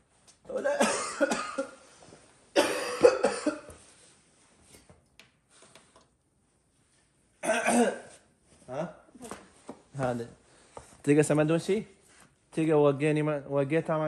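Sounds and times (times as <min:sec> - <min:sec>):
person coughing: 0:00.5 - 0:01.8, 0:02.5 - 0:03.8, 0:07.4 - 0:08.2.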